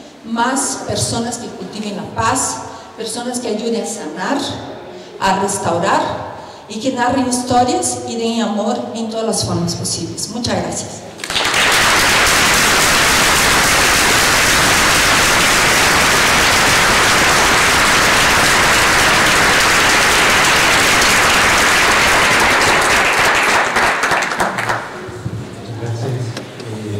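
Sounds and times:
crowd applause: 11.2 - 25.0.

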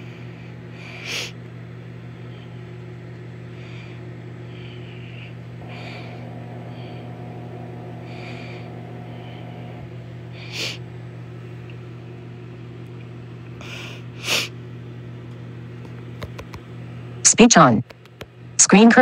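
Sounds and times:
microwave oven humming: 0.0 - 19.0
breathy sniffs: 10.4 - 10.8, 13.6 - 14.5.

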